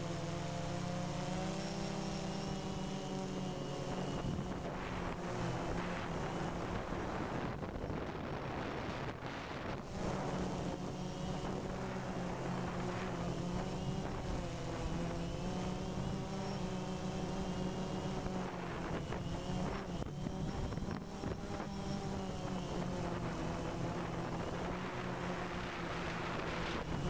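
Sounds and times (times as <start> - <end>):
drone propellers buzzing: 0.0 - 27.0.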